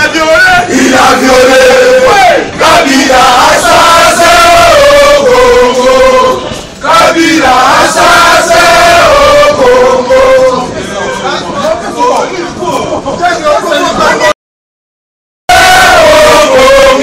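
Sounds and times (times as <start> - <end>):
crowd of men chanting: 0.2 - 11.0, 15.5 - 17.0.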